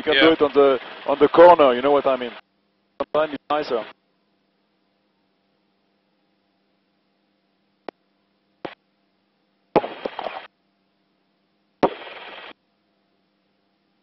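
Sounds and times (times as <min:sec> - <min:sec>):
bursts of static hiss: 0:00.0 - 0:04.0, 0:08.6 - 0:08.8, 0:09.7 - 0:10.5, 0:11.8 - 0:12.6
faint steady hum: 0:00.0 - 0:14.0
short crackle: 0:09.8 - 0:10.5, 0:11.8 - 0:12.6.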